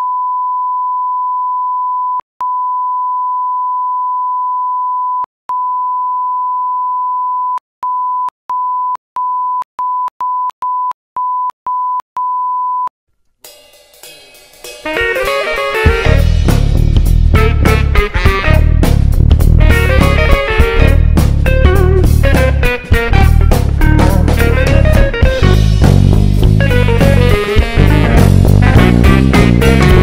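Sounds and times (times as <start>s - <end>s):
music: 13.4s - 30.0s.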